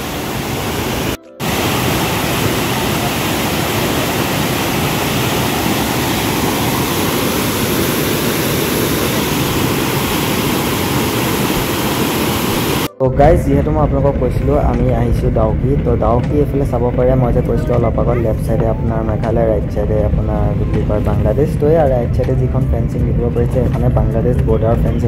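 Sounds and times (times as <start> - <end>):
waterfall rushing: 0.0 - 13.0.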